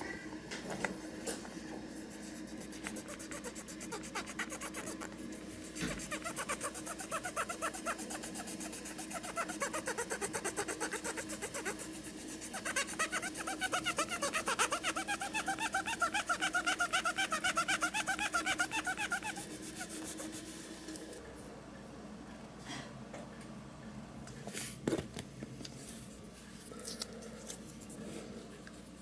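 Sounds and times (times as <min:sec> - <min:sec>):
cotton swab scrubbing plastic: 0:02.1 - 0:20.6.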